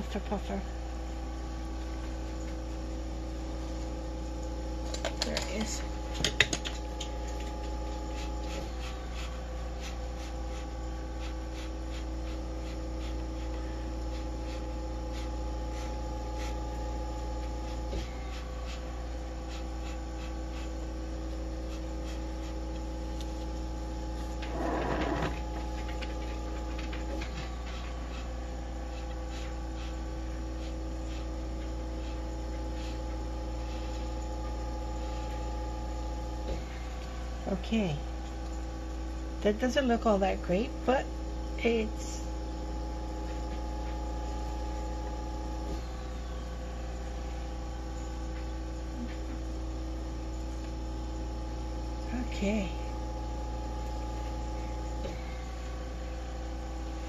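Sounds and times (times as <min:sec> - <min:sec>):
electrical hum with steady tones: 0:00.0 - 0:57.0.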